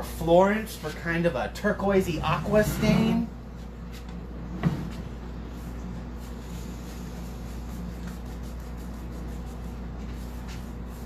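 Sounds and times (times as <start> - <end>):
cloth rag scrubbing wood: 5.6 - 11.0.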